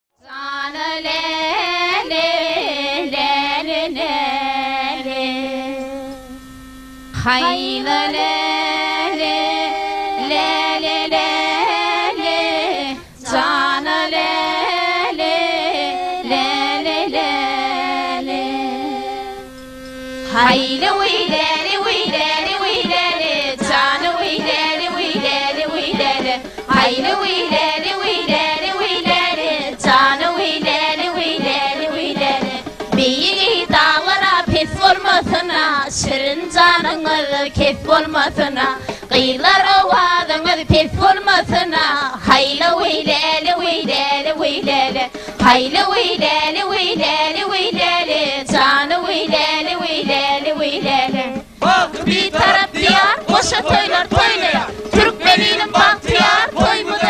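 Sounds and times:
melody over a held drone: 0:04.5 - 0:10.3, 0:17.0 - 0:25.5.

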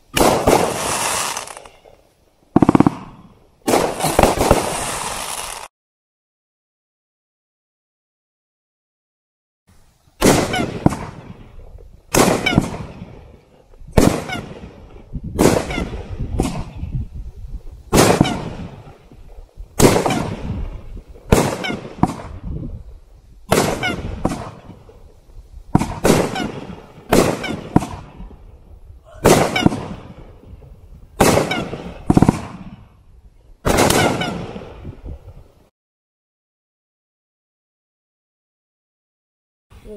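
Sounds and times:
firework bangs: 0:00.1 - 0:05.7, 0:10.2 - 0:17.0, 0:17.9 - 0:28.6, 0:29.2 - 0:33.0, 0:33.6 - 0:35.4.

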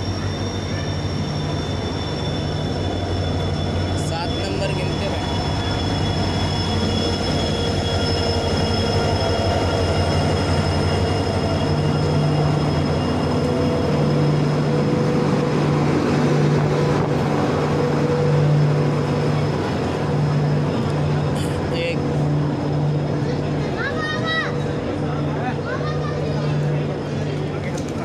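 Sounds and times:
passenger train rumbling past: 0:00.0 - 0:28.0.

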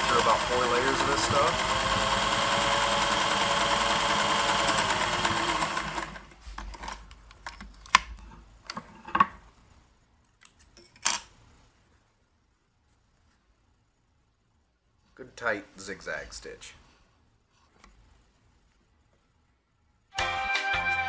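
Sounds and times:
sewing machine stitching: 0:00.0 - 0:06.3.

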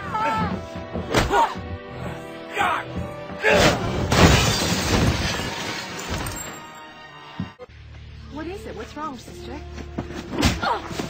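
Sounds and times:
film score music: 0:00.0 - 0:04.2, 0:05.4 - 0:11.0
glass shattering crash: 0:03.9 - 0:06.7.

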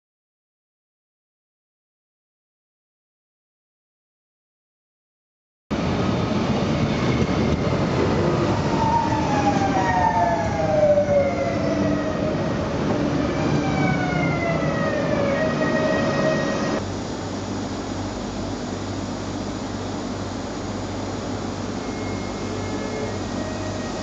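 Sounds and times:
steady train hum: 0:05.7 - 0:24.0
train wheel and rail rumble: 0:05.7 - 0:24.0.

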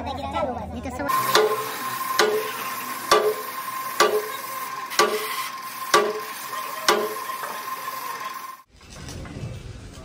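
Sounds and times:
spray gun hissing: 0:01.1 - 0:08.7.

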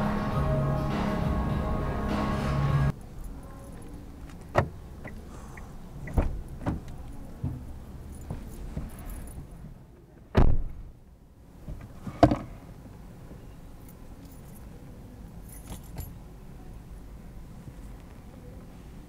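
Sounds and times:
car door thudding shut: 0:06.0 - 0:07.6, 0:10.3 - 0:10.9
keys jingling: 0:08.0 - 0:09.6, 0:13.8 - 0:14.8, 0:15.4 - 0:16.2.

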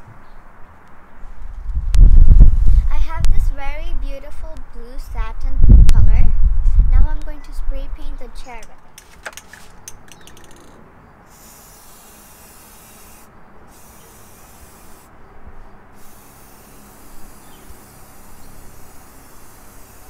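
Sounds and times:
spray paint can hissing: 0:11.3 - 0:15.1, 0:15.9 - 0:20.0.

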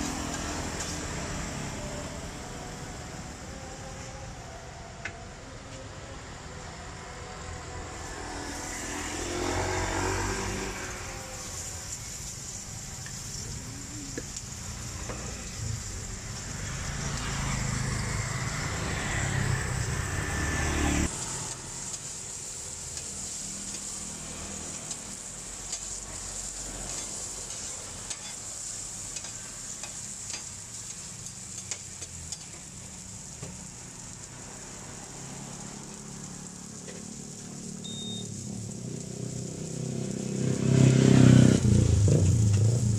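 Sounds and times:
onions sizzling on a griddle: 0:00.0 - 0:42.9
metal spatula turning food: 0:24.6 - 0:33.5.

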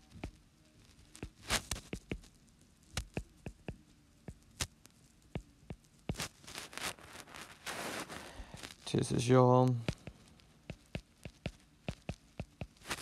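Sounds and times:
sharp taps and clicks: 0:01.2 - 0:02.3, 0:03.0 - 0:04.7, 0:09.8 - 0:13.0.

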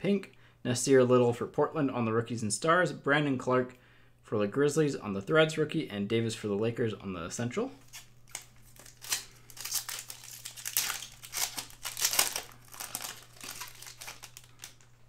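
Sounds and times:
foil wrapper crinkling: 0:07.8 - 0:15.0.

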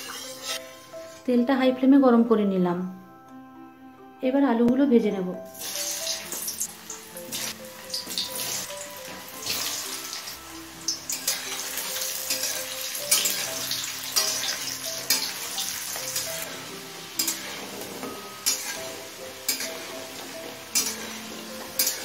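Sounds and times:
metal spatula stirring: 0:00.0 - 0:00.6, 0:10.9 - 0:22.0
potatoes sizzling in oil: 0:00.0 - 0:00.6, 0:05.5 - 0:22.0
soft background music: 0:00.0 - 0:22.0.

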